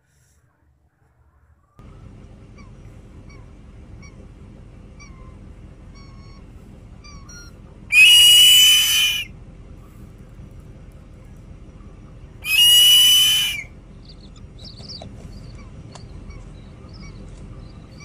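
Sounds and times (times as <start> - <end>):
eagle high-pitched scream: 7.9 - 9.3, 12.4 - 13.7
eagle short falling chirps: 7.9 - 9.3, 12.5 - 13.7.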